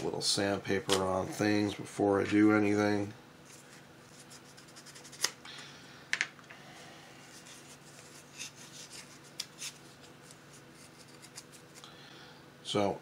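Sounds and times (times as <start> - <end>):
sandpaper rubbing plastic: 4.1 - 5.3.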